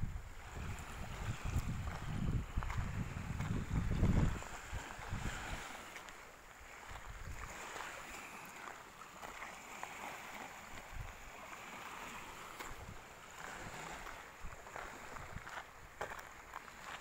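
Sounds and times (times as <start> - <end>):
wind gusting on microphone: 0.0 - 6.0, 6.7 - 8.2, 10.3 - 16.0
small waves on the shore: 0.0 - 17.0
footsteps on sandy path: 0.4 - 17.0.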